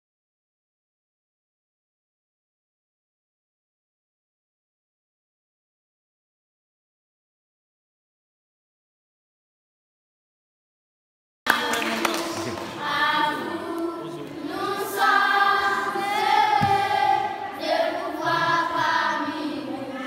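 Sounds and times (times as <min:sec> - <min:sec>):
children's choir singing: 0:11.5 - 0:20.0.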